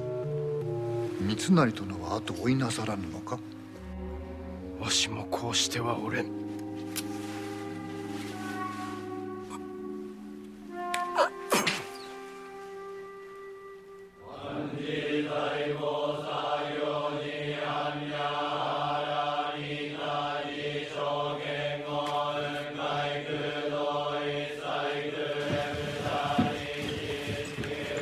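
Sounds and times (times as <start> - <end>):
voices chanting in unison: 14.2 - 28.0.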